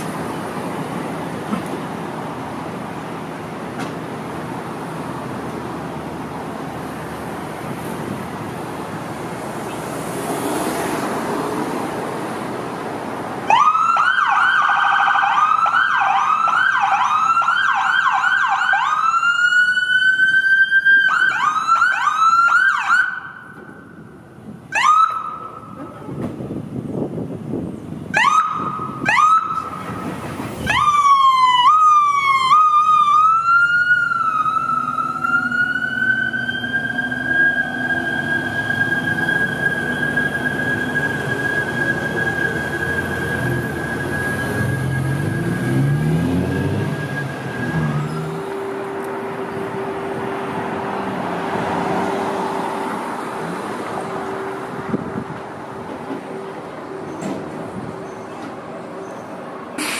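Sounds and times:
traffic noise: 0.0 - 59.9
electronic siren yelping and wailing: 30.6 - 45.4.

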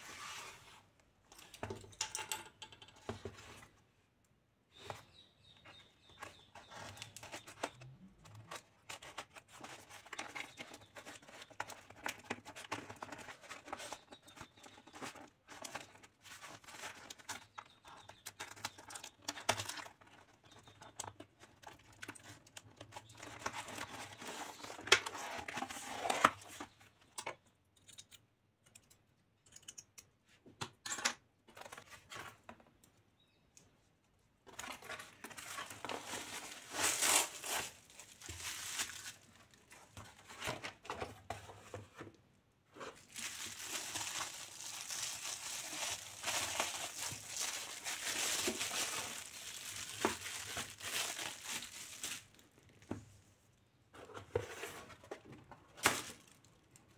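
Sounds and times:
bubble wrap crinkling: 34.9 - 39.8, 42.8 - 52.7
packing tape tearing: 36.0 - 39.3, 43.0 - 52.3.

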